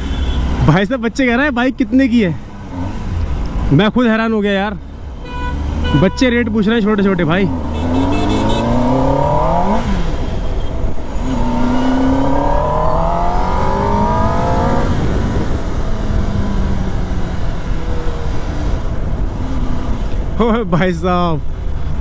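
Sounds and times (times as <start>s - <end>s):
motorcycle engine accelerating: 7.1s - 10.3s, 10.9s - 20.4s
wind on microphone: 11.4s - 17.2s.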